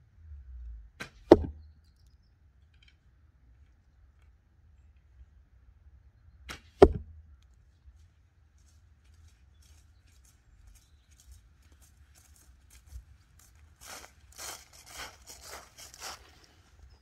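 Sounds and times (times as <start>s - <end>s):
faint low rumble: 0.0s - 13.8s
footsteps on grass: 7.9s - 17.0s.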